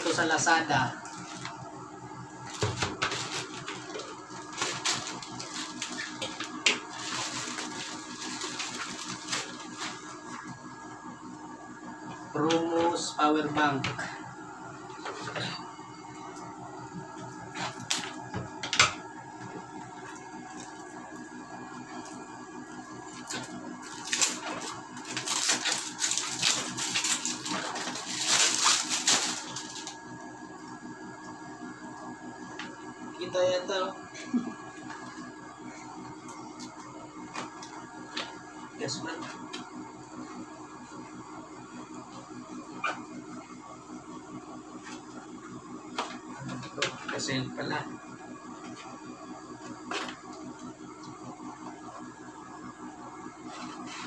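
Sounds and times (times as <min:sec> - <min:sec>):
plastic pouch crinkling: 0:25.0 - 0:29.8.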